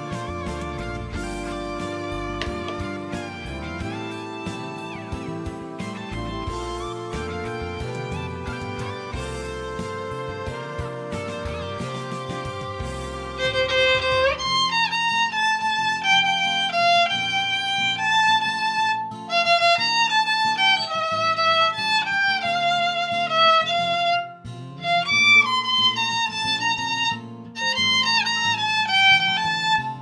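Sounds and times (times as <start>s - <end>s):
lower accompaniment: 0.0s - 18.6s
violin melody with vibrato: 0.0s - 30.0s.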